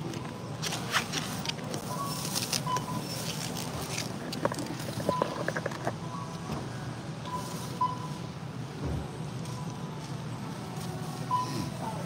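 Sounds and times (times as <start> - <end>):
store hum: 0.0 - 12.0
barcode scanner beeps: 2.6 - 3.1.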